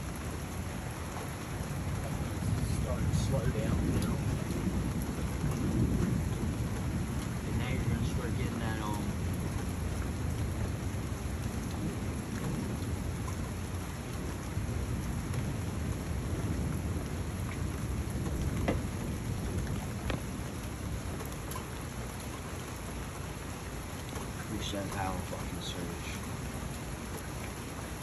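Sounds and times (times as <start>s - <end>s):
thunder rumbling: 0.0s - 22.3s
rain falling: 0.0s - 28.0s.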